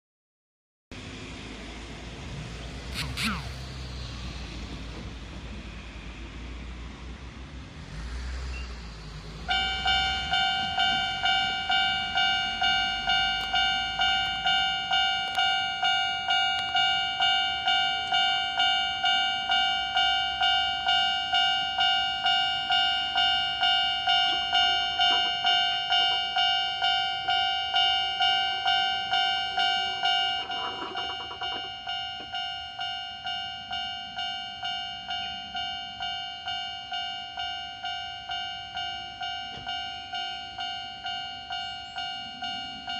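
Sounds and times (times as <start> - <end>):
level crossing warning bell: 8.5 - 42.9.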